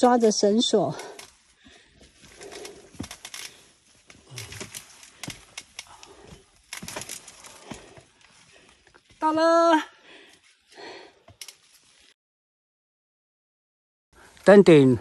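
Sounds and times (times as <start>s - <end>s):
rustling: 0.0s - 9.4s.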